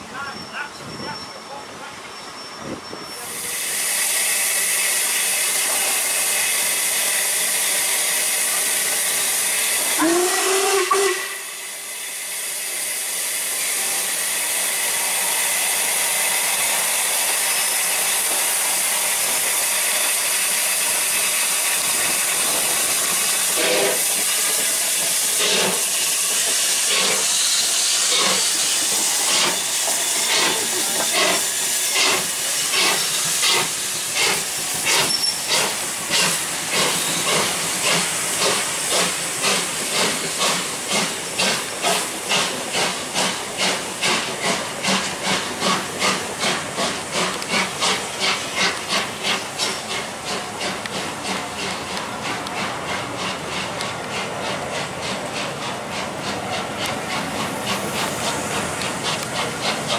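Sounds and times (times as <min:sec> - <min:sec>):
steam hissing: 0:00.0 - 0:59.9
steam locomotive whistle: 0:02.6 - 0:18.4, 0:22.9 - 0:32.1
steam locomotive exhaust beats: 0:03.2 - 0:59.9.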